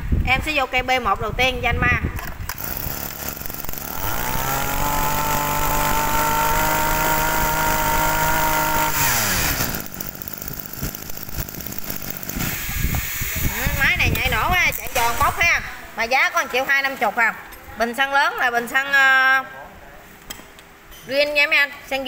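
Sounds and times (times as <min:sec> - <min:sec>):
brush cutter engine revving: 0:02.5 - 0:13.8.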